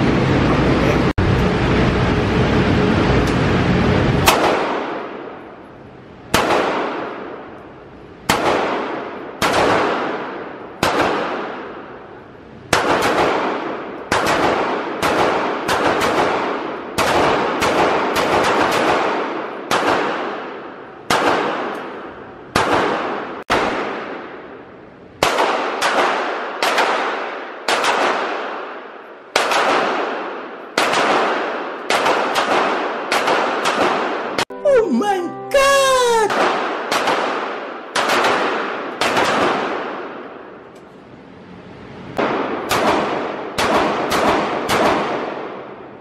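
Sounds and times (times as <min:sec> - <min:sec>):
steady low rumble: 0:00.0 - 0:06.4
pistol shots echoing indoors: 0:04.2 - 0:05.4, 0:06.3 - 0:07.6, 0:08.3 - 0:11.9, 0:12.7 - 0:24.5, 0:25.2 - 0:34.5, 0:36.3 - 0:40.5, 0:42.2 - 0:46.0.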